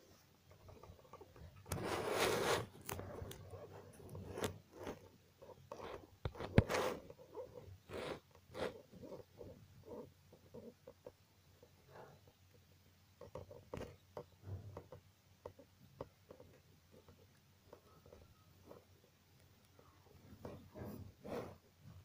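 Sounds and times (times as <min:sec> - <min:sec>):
pencil scratching on paper: 0:01.7 - 0:05.0, 0:05.7 - 0:10.1, 0:20.4 - 0:21.6.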